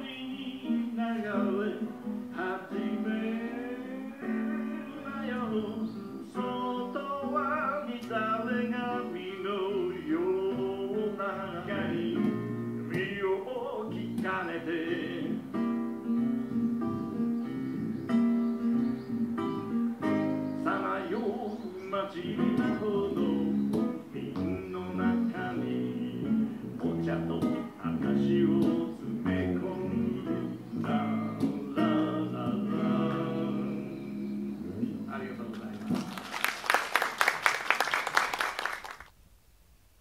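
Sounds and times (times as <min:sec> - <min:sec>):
person singing: 0:00.0 - 0:15.8, 0:20.6 - 0:35.1
guitars strummed and picked: 0:00.0 - 0:36.1.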